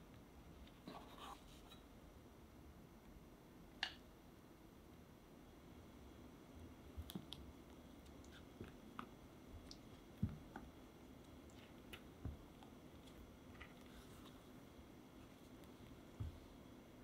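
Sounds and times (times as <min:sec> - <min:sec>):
room hiss: 0:00.0 - 0:17.0.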